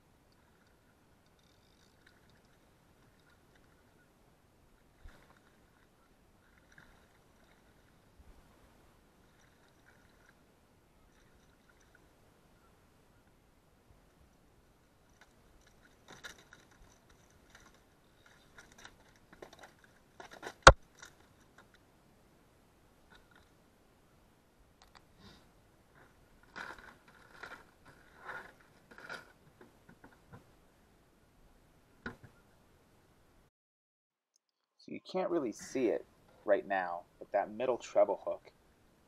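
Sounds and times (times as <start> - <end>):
clicks and scrapes of handling: 15.1 - 21.8, 26.0 - 30.2
rustling scrapes: 25.9 - 29.4.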